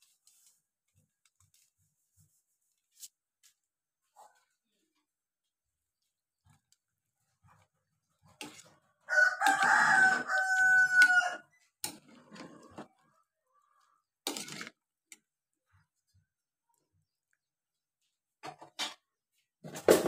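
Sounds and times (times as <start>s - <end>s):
rooster crowing: 9.1s - 11.5s
knocks and scrapes: 11.6s - 13.1s.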